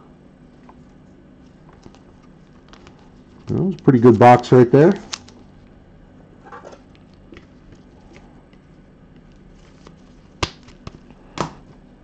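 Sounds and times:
cards rustling: 1.7 - 4.1, 9.2 - 11.6.

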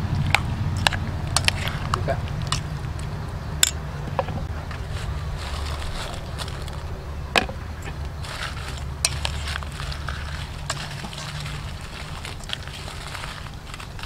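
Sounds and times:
steady low hum: 0.0 - 14.0
wet squishing stirring: 8.2 - 14.0.

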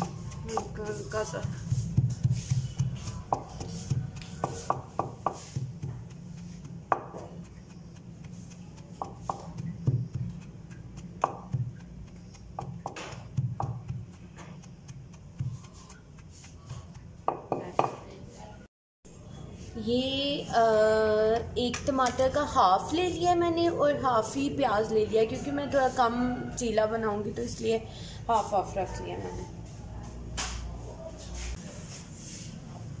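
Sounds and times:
pestle pounding in mortar: 0.0 - 18.1.

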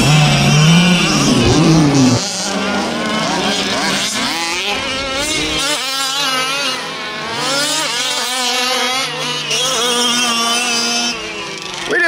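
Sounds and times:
small two-stroke engines revving: 0.0 - 12.0.

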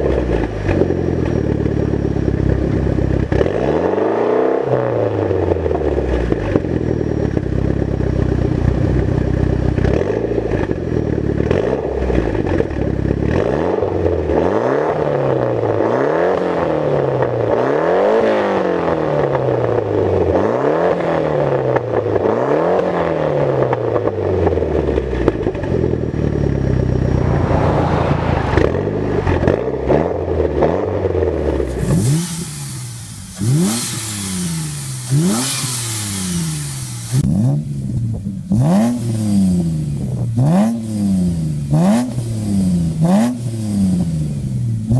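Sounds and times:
car engine revving: 22.1 - 44.2
hiss: 32.1 - 37.2.

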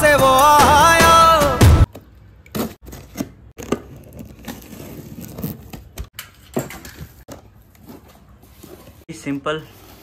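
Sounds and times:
packaging rustling and scraping: 2.5 - 6.1, 6.8 - 10.0.

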